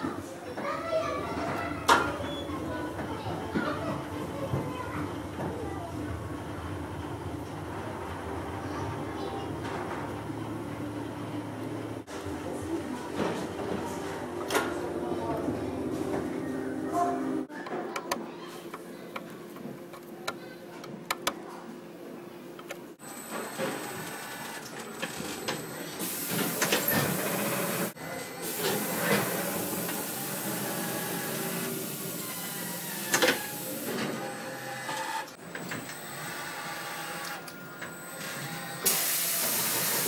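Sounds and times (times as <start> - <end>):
hiss: 38.8 - 40.0.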